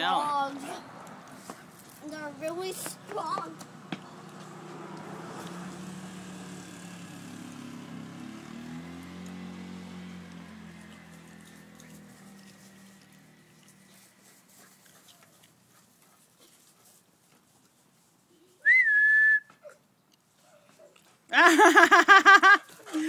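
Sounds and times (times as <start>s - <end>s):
faint engine hum: 0.2s - 17.0s
short whistled note: 18.6s - 19.5s.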